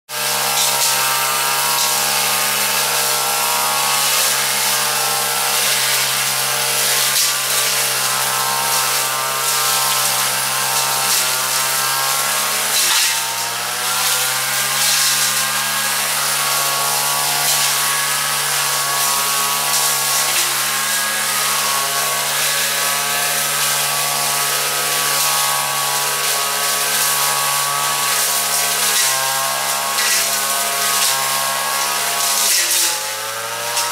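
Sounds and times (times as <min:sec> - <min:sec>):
brush cutter engine whining: 0:00.1 - 0:33.9.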